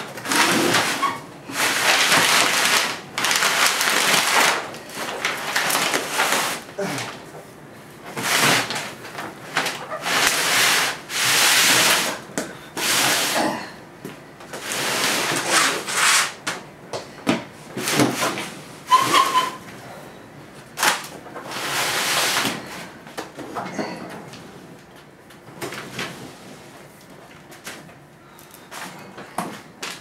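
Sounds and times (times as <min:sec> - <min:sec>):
refrigerator scraping across floor: 0:00.0 - 0:06.7, 0:14.6 - 0:16.4, 0:17.8 - 0:19.6, 0:21.4 - 0:22.9
short squeak: 0:18.9 - 0:19.6.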